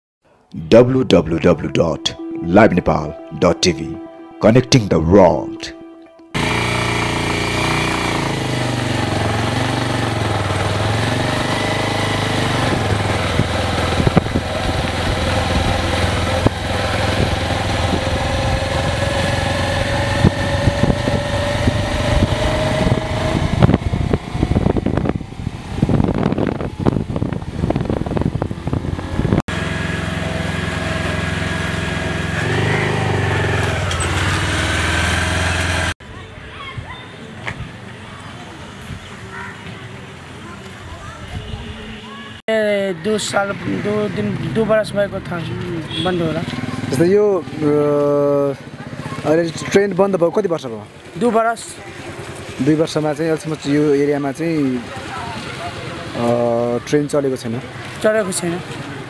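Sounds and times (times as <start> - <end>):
vehicle engine running: 6.4 - 36.0.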